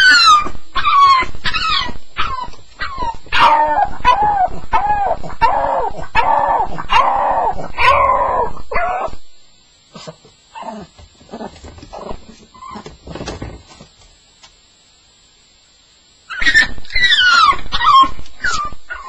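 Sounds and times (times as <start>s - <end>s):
dog whining and whimpering: 0.0s - 9.2s, 10.5s - 12.9s, 16.3s - 19.0s.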